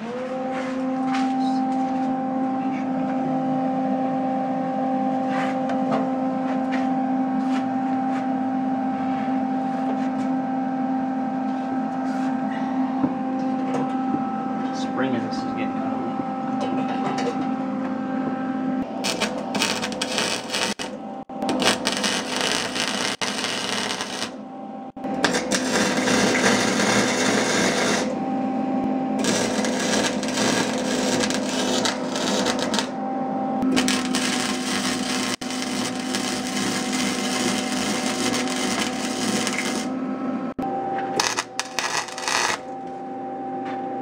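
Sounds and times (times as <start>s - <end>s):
welding arc crackle: 18.8s - 24.4s, 25.0s - 28.2s, 29.2s - 32.9s, 33.6s - 39.9s, 41.2s - 42.8s.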